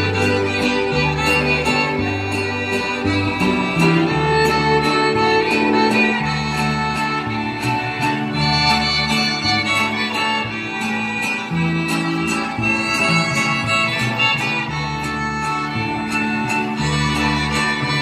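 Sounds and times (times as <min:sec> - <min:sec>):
bass line: 0:00.0 - 0:18.0
strummed guitars: 0:00.0 - 0:18.0
violins playing melody: 0:00.0 - 0:18.0.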